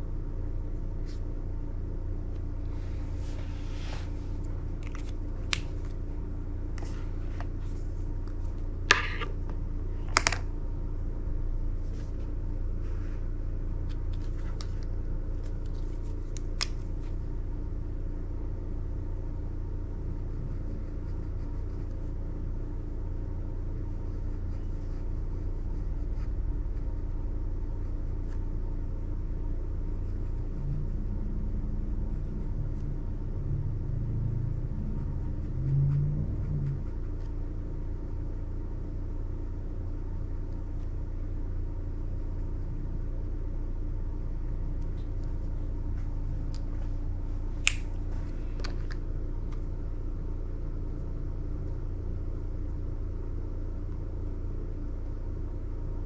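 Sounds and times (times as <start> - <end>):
steady low rumble: 0.0 - 56.0.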